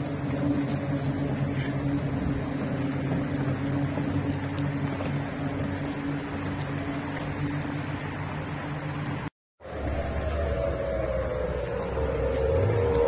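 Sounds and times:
power boat engine droning: 0.0 - 13.0.

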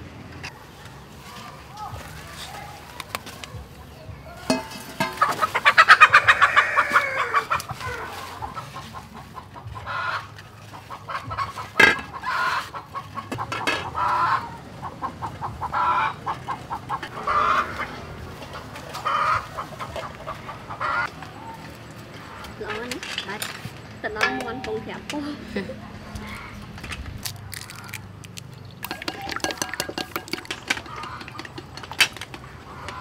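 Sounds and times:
chicken clucking: 3.9 - 23.0, 28.9 - 33.0.

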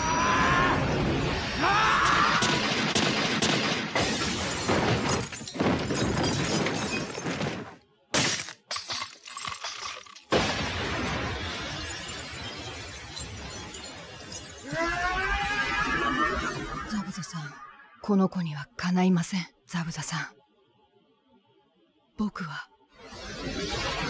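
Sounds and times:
crash of breaking: 4.0 - 14.8.

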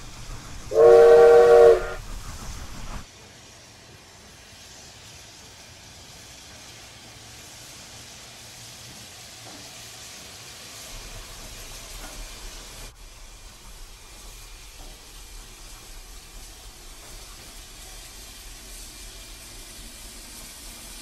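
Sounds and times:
steam locomotive hissing: 0.0 - 21.0.

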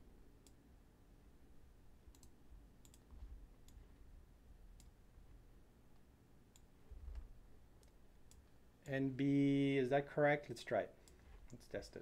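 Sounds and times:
mouse clicks: 2.1 - 3.8.

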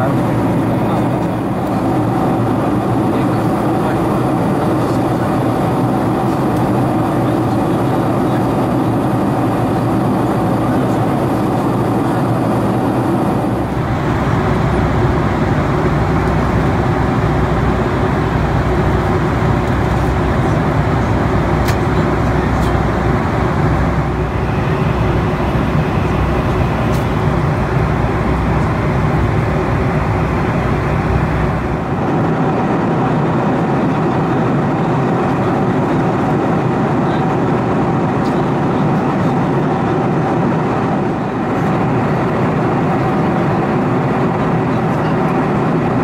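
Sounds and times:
airflow past fuselage: 0.0 - 38.2
jet engine rumble: 0.0 - 46.0.

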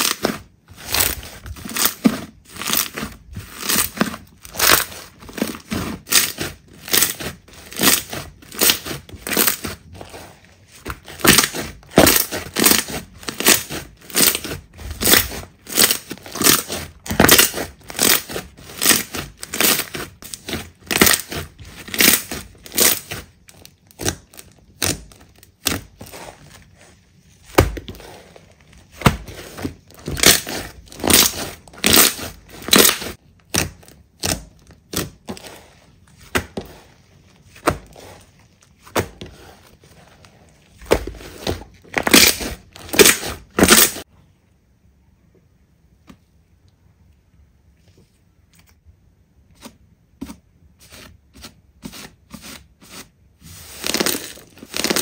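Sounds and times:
slime squishing and popping: 10.9 - 26.2, 28.9 - 35.2.

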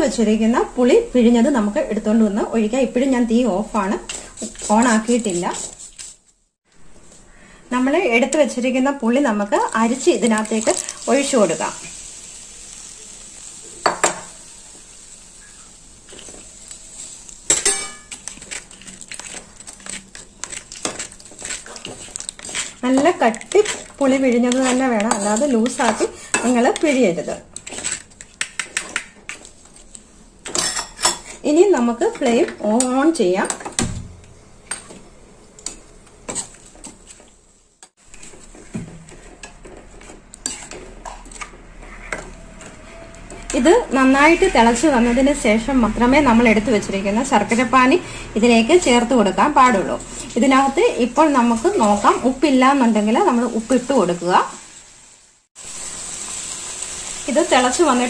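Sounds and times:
spoon scraping in pan: 3.0 - 6.3, 13.8 - 33.8, 34.6 - 46.6, 47.4 - 52.5
metal spoon clinking on pan: 17.5 - 18.4, 30.5 - 31.3.

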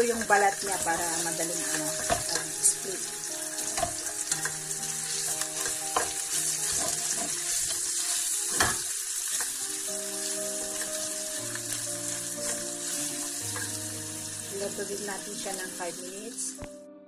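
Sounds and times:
sausage sizzling in a wok: 0.0 - 16.6
spatula scraping and knocking pan: 0.8 - 2.6, 3.6 - 9.5.

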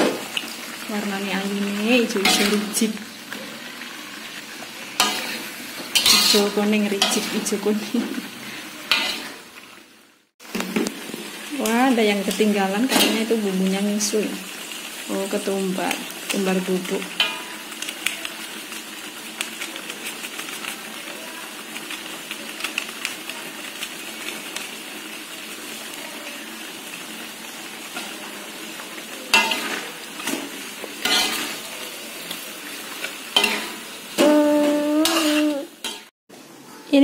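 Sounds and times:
chicken sizzling in a wok: 0.0 - 37.0
metal spatula scraping a pan: 2.1 - 7.9, 8.8 - 9.5, 29.3 - 36.1.

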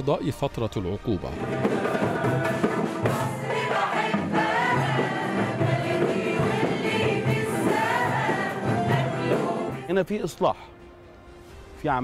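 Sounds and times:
choir singing: 1.3 - 9.9
keyboard accompaniment: 1.4 - 11.4.

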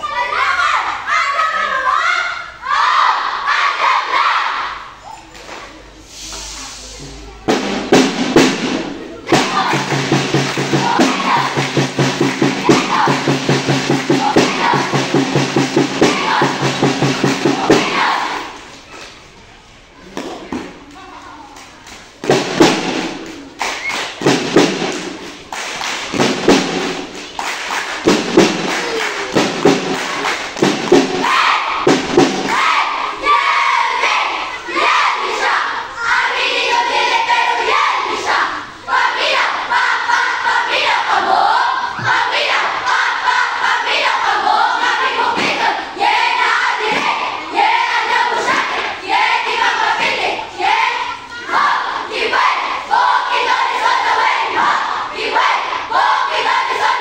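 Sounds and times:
children shouting together: 0.0 - 5.1, 17.5 - 18.6, 31.2 - 31.8, 32.5 - 57.0.

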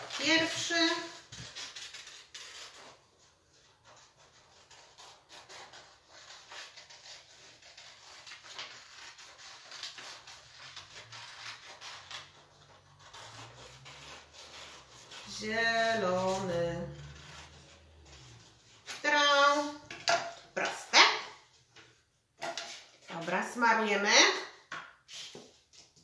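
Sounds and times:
paper rustling: 0.0 - 20.5
scissors snipping paper: 0.0 - 20.5.

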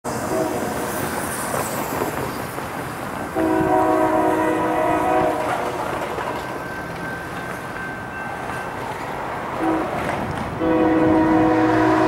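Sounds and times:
freight train rumbling: 0.0 - 12.0
locomotive air horn blast: 0.2 - 0.7, 3.4 - 5.8, 9.6 - 10.0, 10.6 - 12.0.

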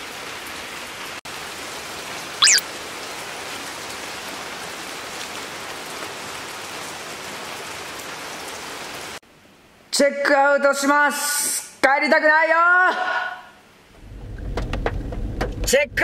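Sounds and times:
steady rain falling: 0.0 - 11.6
short high chirp: 2.4 - 2.6.

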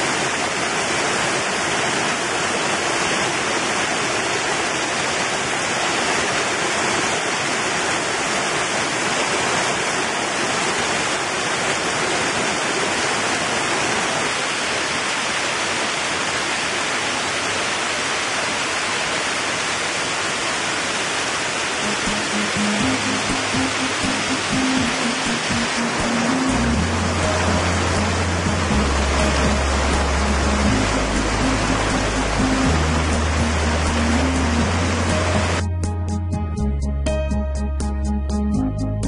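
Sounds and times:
stream rushing over rocks: 0.0 - 35.7
music: 21.8 - 39.0.

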